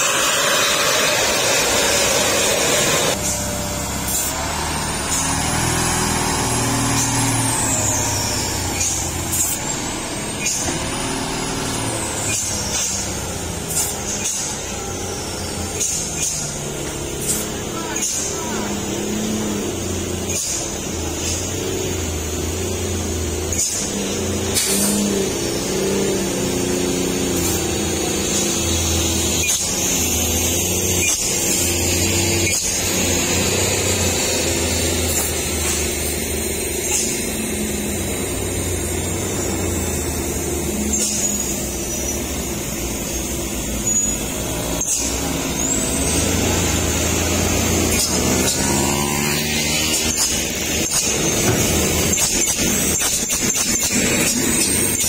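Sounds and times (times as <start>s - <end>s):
diesel truck engines labouring: 0.0s - 55.0s
engine revving: 0.0s - 55.0s.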